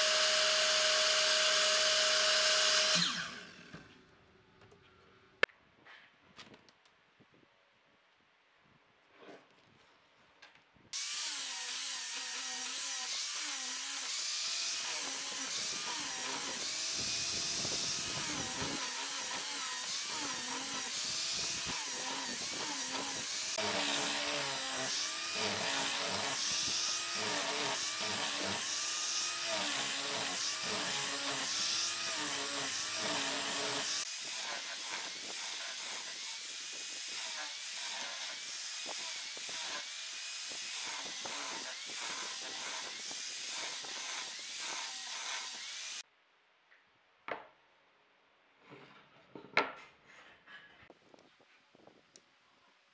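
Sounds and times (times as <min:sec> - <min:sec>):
angle grinder sanding wood: 0:11.0 - 0:46.0.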